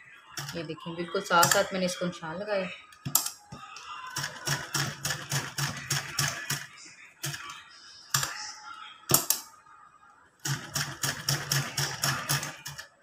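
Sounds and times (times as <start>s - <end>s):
sewing machine clacking: 10.5s - 12.8s.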